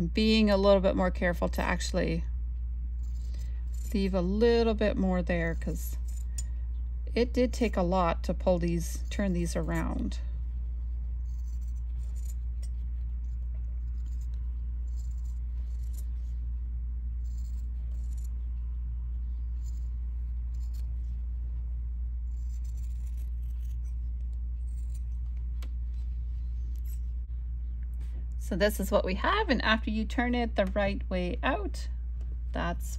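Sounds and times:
steady low hum: 0.0 - 32.9
scissors snipping fabric: 22.3 - 25.3.

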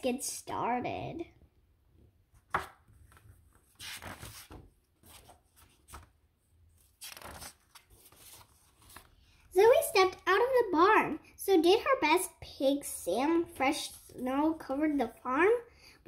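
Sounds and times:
book pages turning: 2.4 - 9.3.

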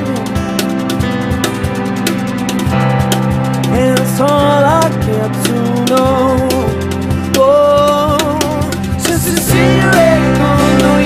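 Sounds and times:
person singing: 0.0 - 1.1, 3.6 - 11.0
pop-rock band playing: 0.0 - 11.0.

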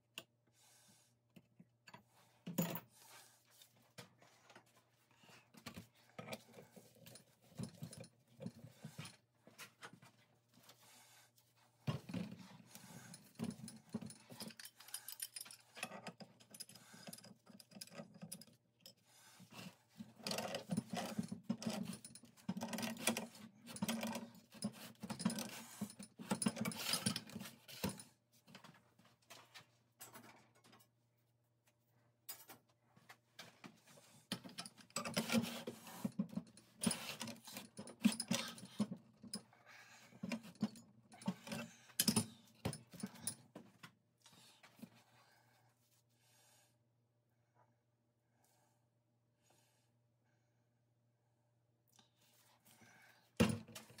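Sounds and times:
metal clinks and scrapes: 12.0 - 28.1, 34.2 - 39.4, 40.2 - 43.4.

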